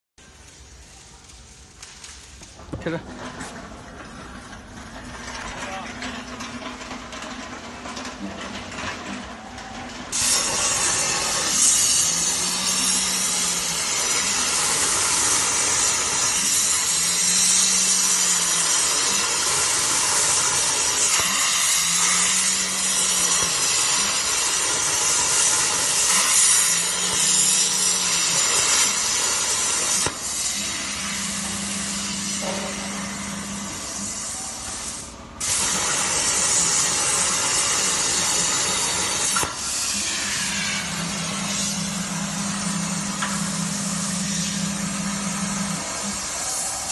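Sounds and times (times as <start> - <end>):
plasma torch hissing: 10.1 - 46.9
low machine hum: 39.9 - 46.6.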